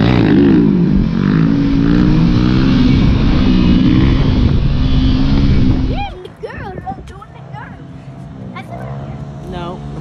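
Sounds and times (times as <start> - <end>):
motorcycle engine revving: 0.0 - 10.0
steady rushing noise: 0.0 - 10.0.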